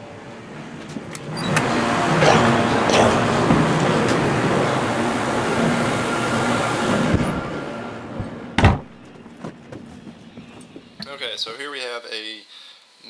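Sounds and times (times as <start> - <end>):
rushing rumble of shop noise: 0.0 - 11.0
sharp thump: 8.2 - 9.0.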